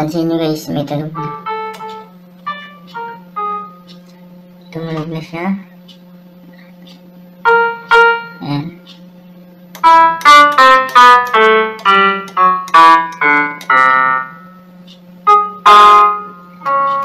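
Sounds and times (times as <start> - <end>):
electronic keyboard single notes: 0.7 - 5.3, 7.4 - 9.0, 9.7 - 17.0.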